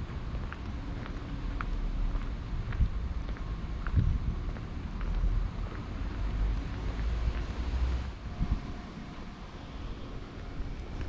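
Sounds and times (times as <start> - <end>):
wind buffeting microphone: 2.4 - 7.5, 8.1 - 11.0.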